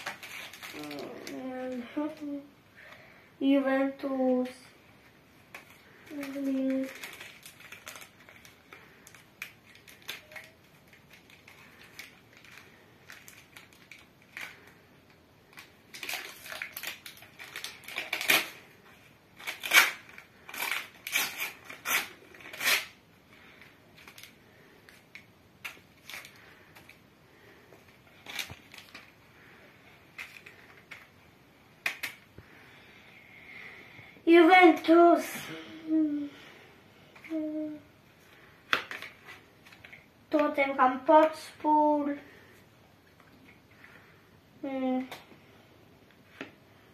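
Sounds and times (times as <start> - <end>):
paper packets crinkling and tearing: 0.0 - 2.4, 5.5 - 31.2, 38.4 - 40.8.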